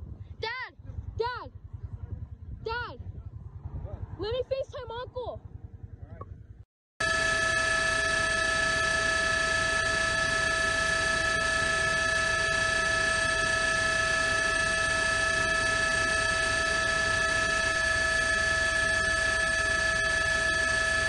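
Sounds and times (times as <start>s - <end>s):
steady electronic buzzing tone: 7.0s - 21.0s.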